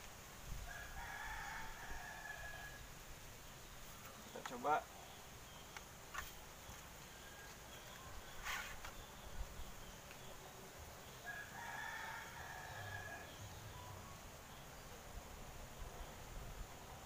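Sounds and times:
rooster crowing: 0.6s - 2.8s, 11.2s - 13.5s.

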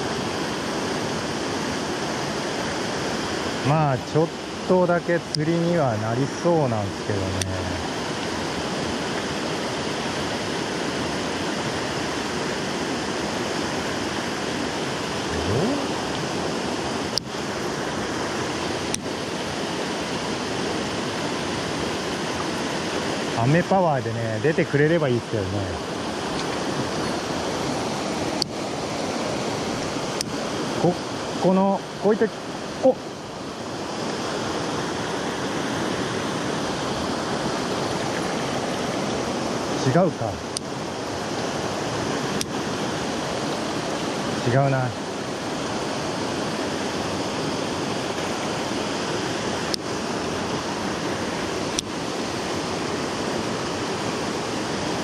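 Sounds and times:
stream rushing over rocks: 0.0s - 55.0s
short rising tone: 15.3s - 16.1s.

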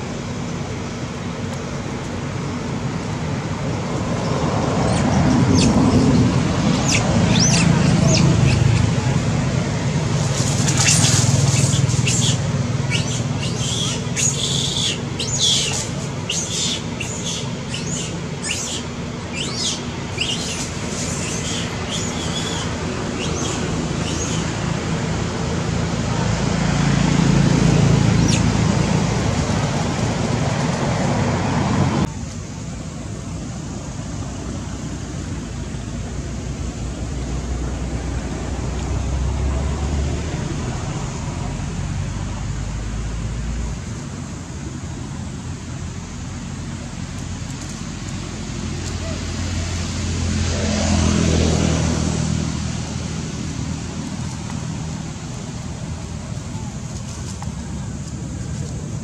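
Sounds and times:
low traffic engine hum: 0.0s - 59.0s
birds chirping: 4.2s - 9.2s, 10.3s - 24.7s.

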